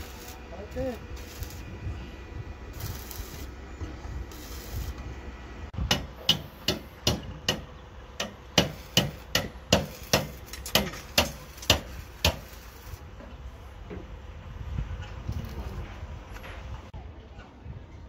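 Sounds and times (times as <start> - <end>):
hammer blows on formwork: 5.8 - 12.6.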